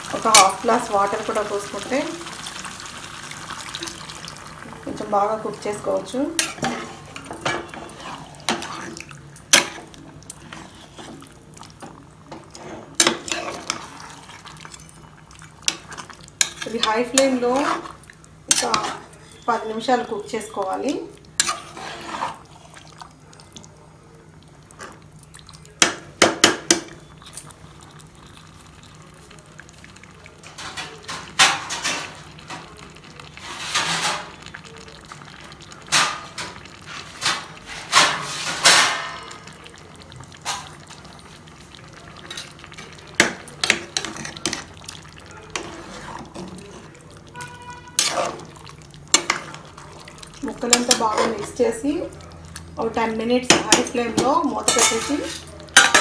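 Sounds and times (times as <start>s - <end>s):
wet gravy sounds: 0.0s - 56.0s
metal spatula scraping pot: 5.4s - 11.3s, 12.3s - 15.0s, 15.7s - 20.6s, 21.4s - 22.7s, 43.6s - 44.7s, 45.5s - 52.0s, 53.5s - 56.0s.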